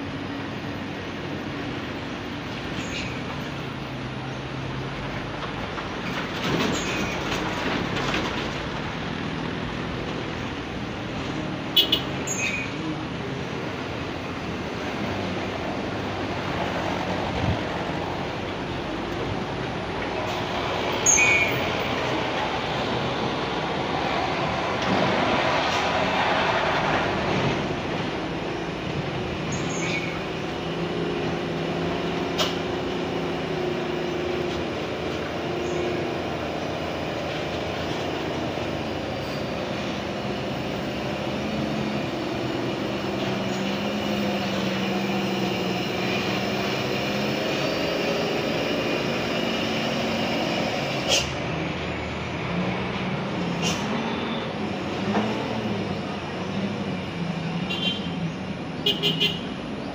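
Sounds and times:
cars and motorbikes passing: 0:00.0 - 0:59.9
truck diesel engines under load: 0:00.0 - 0:59.9.

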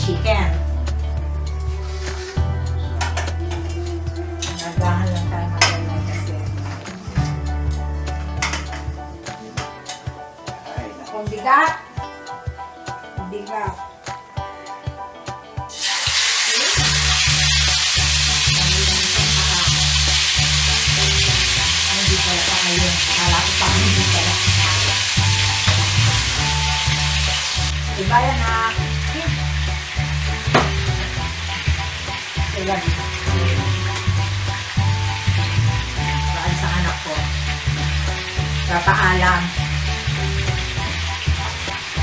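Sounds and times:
background music with low beat: 0:00.0 - 0:42.0
chicken sizzling in hot oil: 0:15.7 - 0:42.0.

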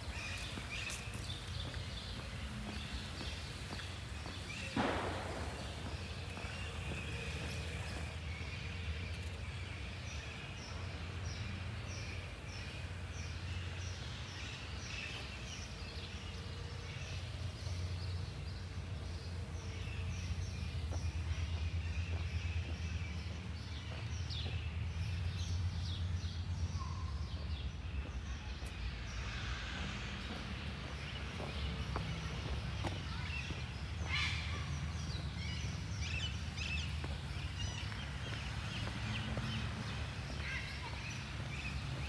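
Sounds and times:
songbird chirping: 0:00.0 - 0:29.1
low outdoor rumble: 0:00.0 - 0:42.0.

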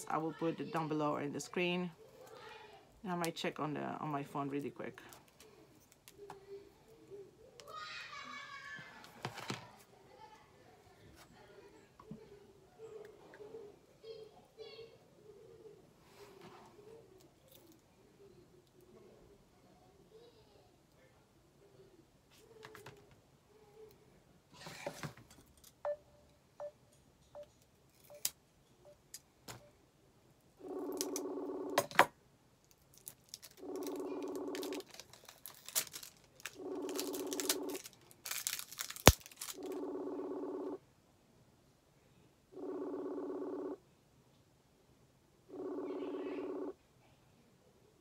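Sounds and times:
handling taps and rustling: 0:09.0 - 0:09.9.

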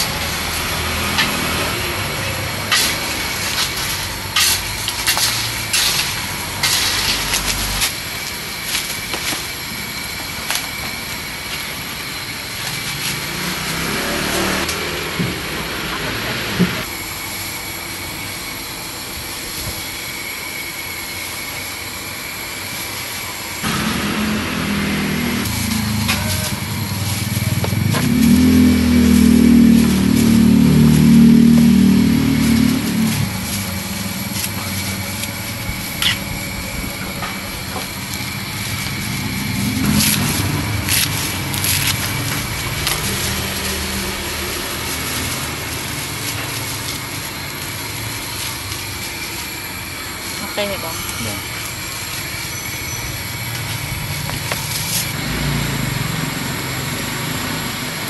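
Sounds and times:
vehicle engine passing by: 0:00.0 - 0:04.6, 0:12.8 - 0:16.8, 0:23.6 - 0:35.7, 0:38.4 - 0:47.5, 0:53.4 - 0:58.0.

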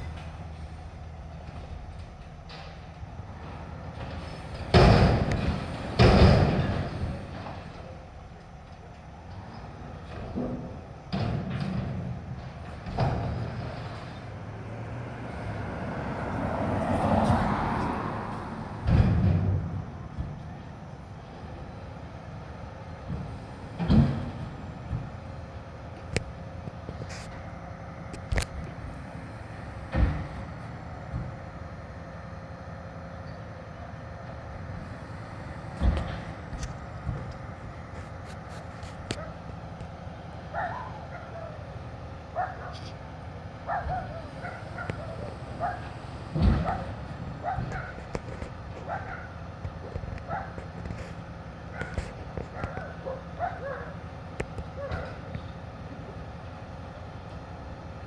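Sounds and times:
garbage truck engine running: 0:00.0 - 0:58.0
dumpster knock: 0:04.6 - 0:07.6, 0:18.7 - 0:20.4, 0:23.8 - 0:25.2, 0:46.3 - 0:48.0
garbage truck engine revving: 0:10.0 - 0:26.4
loud thump: 0:18.8 - 0:20.3.

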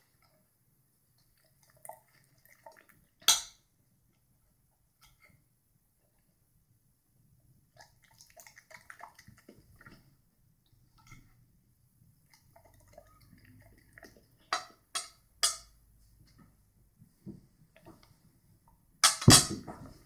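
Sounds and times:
cutlery clinking on ceramic plate: 0:14.6 - 0:15.8.

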